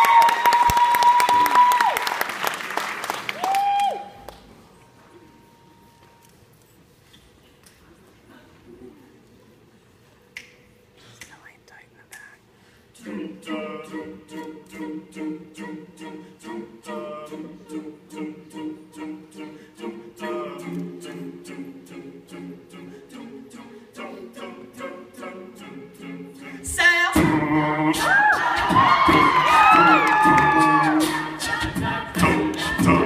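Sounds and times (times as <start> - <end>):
audience cheering and whooping: 0.0 - 2.4, 3.1 - 4.3, 28.0 - 31.4
finger snaps: 10.3 - 11.4
a cappella group singing: 12.8 - 33.0.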